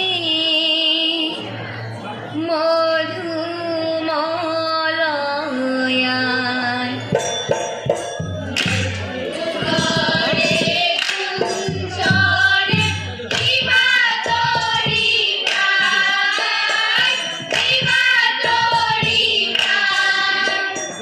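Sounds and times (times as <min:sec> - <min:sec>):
hand-played barrel drum: 0:07.1 - 0:20.8
rhythmic hand clapping: 0:07.2 - 0:21.0
women's chorus singing: 0:08.6 - 0:21.0.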